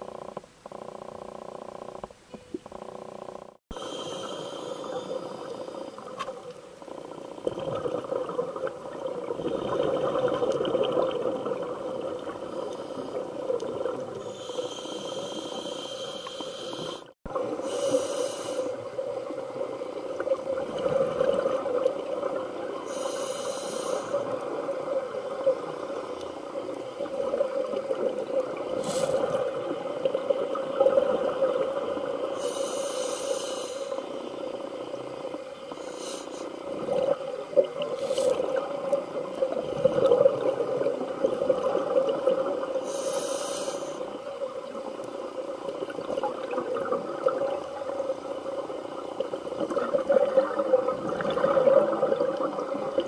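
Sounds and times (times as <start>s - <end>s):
underwater bubbling of exhaled air: 2.5s - 32.5s, 36.6s - 43.1s, 44.0s - 53.0s
regulator inhalation hiss: 3.8s - 6.0s, 14.2s - 18.8s, 22.9s - 24.3s, 32.4s - 34.2s, 35.8s - 36.6s, 42.8s - 44.1s.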